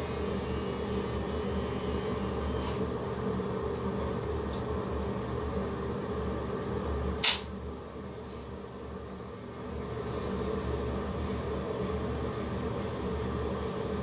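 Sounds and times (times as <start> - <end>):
sharp click: 7.2 - 7.5.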